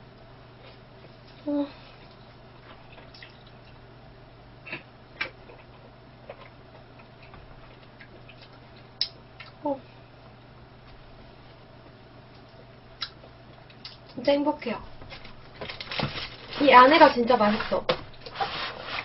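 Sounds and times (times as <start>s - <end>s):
low steady hum: 0.0s - 19.0s
person chewing: 0.6s - 3.8s, 4.7s - 9.6s.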